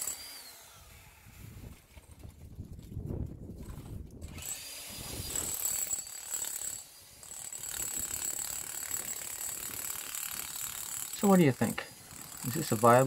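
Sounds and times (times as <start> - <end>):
demolition hammer chipping ice: 0.0 - 0.6, 4.3 - 13.0.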